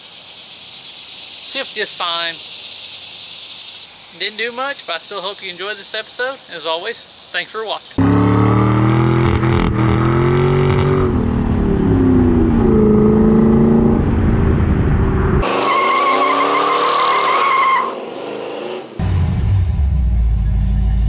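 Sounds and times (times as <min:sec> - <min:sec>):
car engine revving: 0:08.0 - 0:21.0
high tyre squeal: 0:15.4 - 0:19.0.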